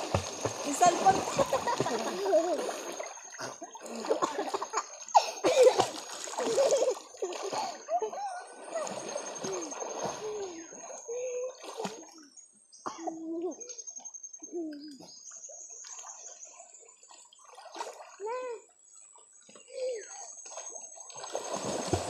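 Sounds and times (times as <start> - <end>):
water splashing and sloshing: 0.0 - 12.4, 15.3 - 22.0
voices: 0.4 - 2.9.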